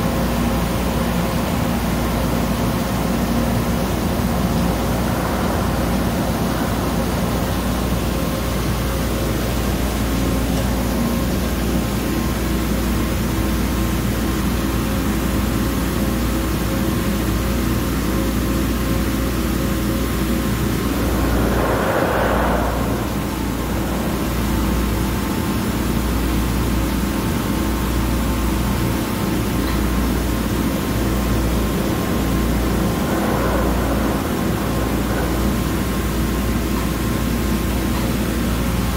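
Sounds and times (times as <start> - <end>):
rushing hiss: 3.1 - 10.5, 19.0 - 27.2, 29.5 - 38.6.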